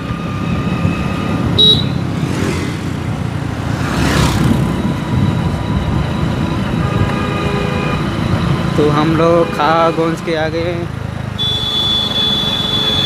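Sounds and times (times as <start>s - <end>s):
rush of passing noise: 0.0s - 7.2s
wind noise: 0.0s - 8.9s
scooter engine rumble: 0.0s - 13.0s.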